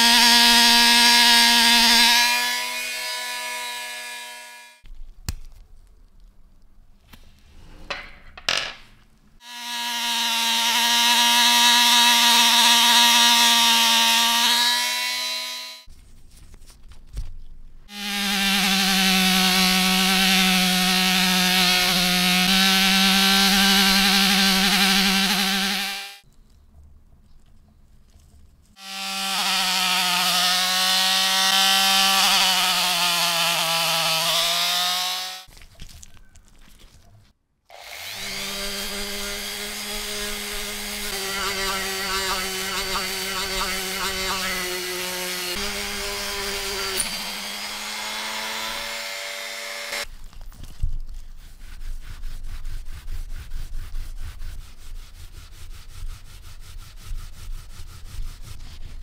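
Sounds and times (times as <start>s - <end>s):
rotary tool motor whine: 37.8s - 50.0s
metal part rubbed on felt cloth: 50.8s - 59.0s.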